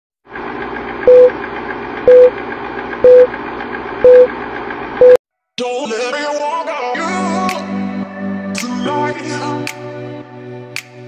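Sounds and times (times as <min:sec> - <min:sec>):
film projector whir: 0:00.3 - 0:05.1
short beeps: 0:01.1 - 0:01.3, 0:02.1 - 0:02.3, 0:03.0 - 0:03.3, 0:04.0 - 0:04.3, 0:05.0 - 0:05.2
music: 0:05.6 - 0:11.0.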